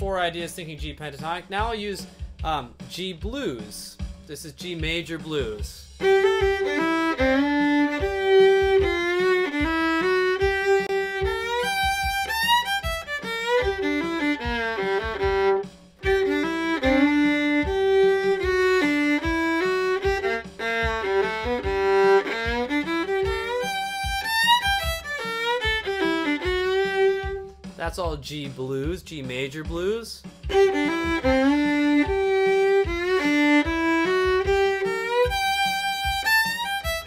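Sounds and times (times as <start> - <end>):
solo fiddle playing bluegrass licks: 6.0 - 27.6, 30.5 - 37.0.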